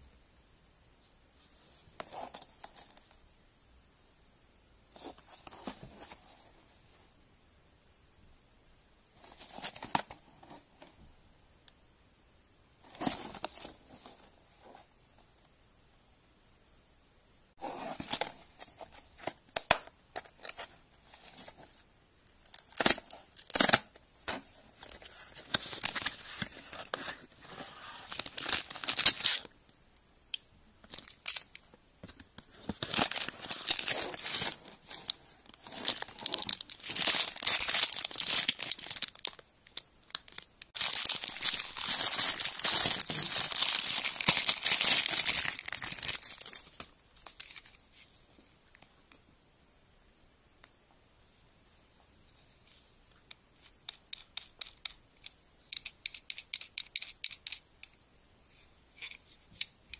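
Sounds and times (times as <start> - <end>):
thin material crinkling and tearing: 32.7 - 47.8.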